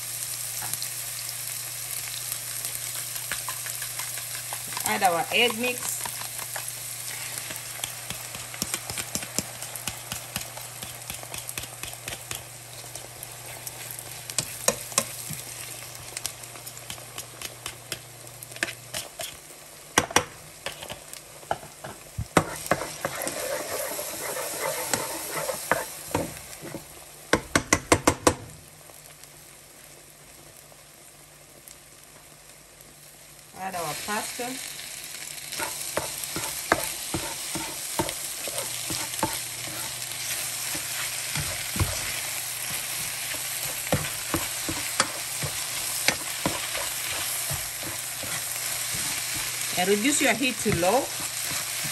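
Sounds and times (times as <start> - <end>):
eggs sizzling in a frying pan: 0.0 - 51.9
spatula scraping a pan: 2.8 - 15.2, 20.6 - 21.1, 22.4 - 26.0, 35.5 - 51.9.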